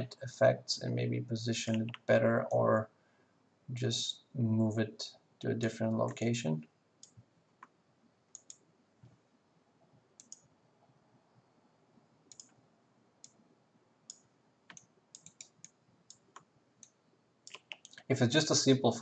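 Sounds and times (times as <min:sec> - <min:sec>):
computer mouse clicks: 0:08.3 - 0:08.6, 0:10.2 - 0:10.5, 0:12.3 - 0:12.6, 0:14.1 - 0:18.0.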